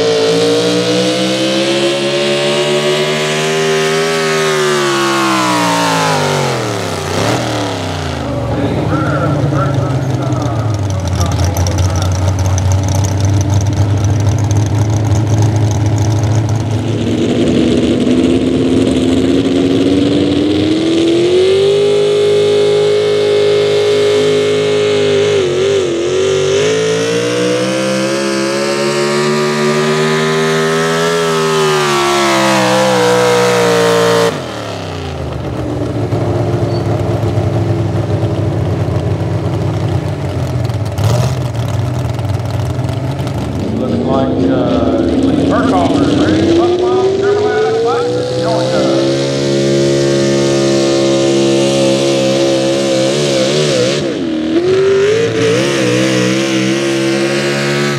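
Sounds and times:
truck engine revving hard: 0:00.0 - 0:57.9
low engine idle: 0:08.2 - 0:16.8.

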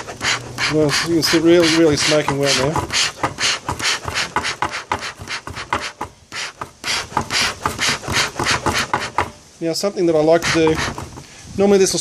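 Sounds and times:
bellows puffing air: 0:00.0 - 0:09.4, 0:10.4 - 0:11.6.

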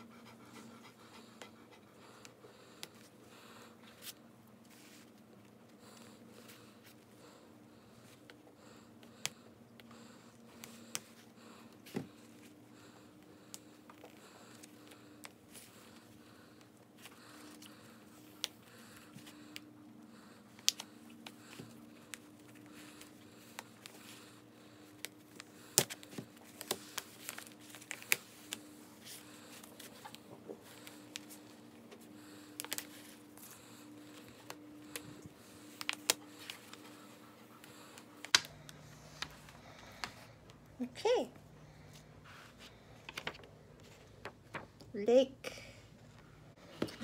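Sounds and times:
faint steady hum: 0:00.0 - 0:47.0.

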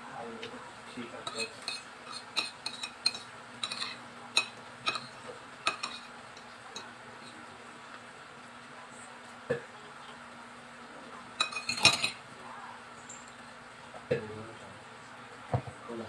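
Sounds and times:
cutlery clinking on a plate: 0:01.2 - 0:06.9, 0:11.4 - 0:12.2.

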